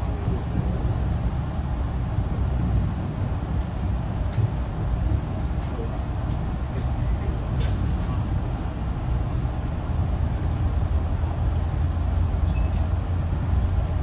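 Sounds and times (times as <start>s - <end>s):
train rumble inside coach: 0.0s - 14.0s
short high squeaks: 12.4s - 12.9s.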